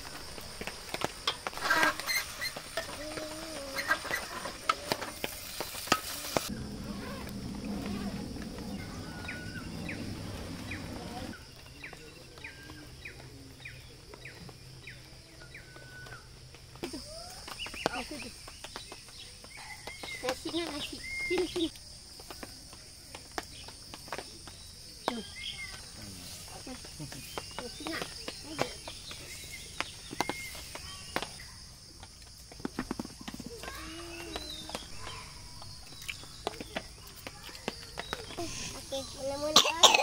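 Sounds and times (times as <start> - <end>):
wok sizzling: 0.0 - 11.6
birds chirping: 0.0 - 40.0.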